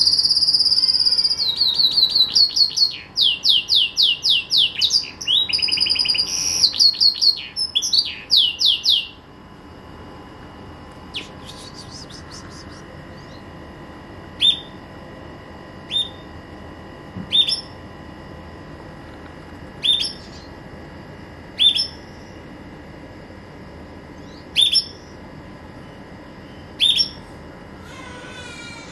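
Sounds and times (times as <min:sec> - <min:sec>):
canary call notes: 0:00.0 - 0:09.2, 0:11.1 - 0:13.5, 0:14.4 - 0:14.8, 0:17.3 - 0:17.8, 0:19.8 - 0:20.5, 0:21.6 - 0:22.0, 0:24.3 - 0:25.1, 0:26.8 - 0:27.2
canary chirping: 0:00.0 - 0:09.2, 0:19.8 - 0:20.5, 0:21.6 - 0:22.0.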